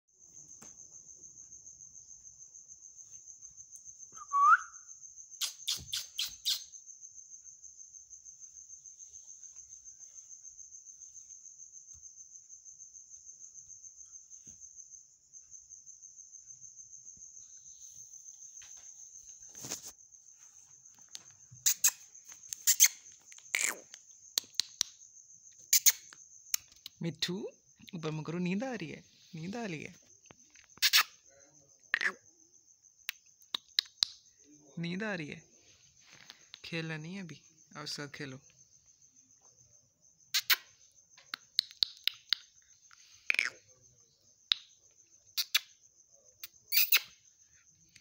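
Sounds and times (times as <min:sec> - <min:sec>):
insect chirping: 0:00.1 - 0:48.0
parakeet whistle: 0:04.2 - 0:04.8.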